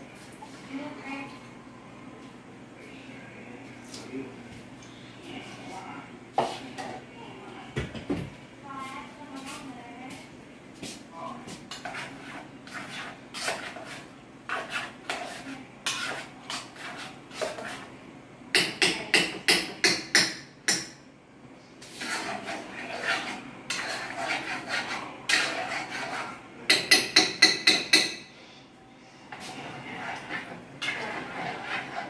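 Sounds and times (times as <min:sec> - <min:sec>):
metal utensil scraping a pot: 0:11.7 - 0:17.9, 0:21.8 - 0:28.1, 0:29.3 - 0:32.0.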